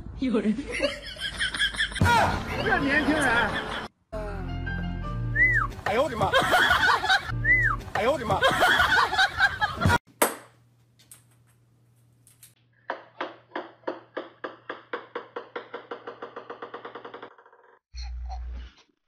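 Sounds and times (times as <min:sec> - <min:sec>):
people laughing and exclaiming: 0:00.8 - 0:03.9, 0:06.0 - 0:07.3, 0:08.1 - 0:10.0
music: 0:04.1 - 0:08.4.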